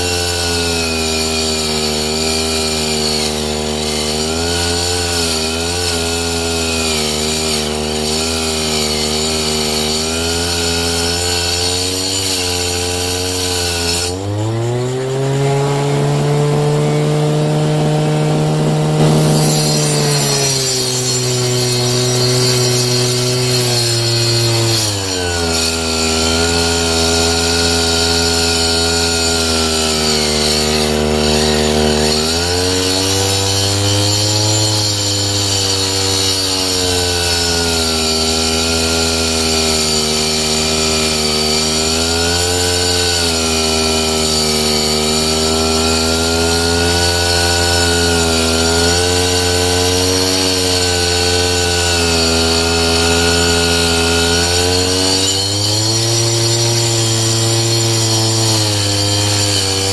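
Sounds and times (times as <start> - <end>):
blade ripping wood: 0.0 - 59.9
brush cutter engine: 0.0 - 59.9.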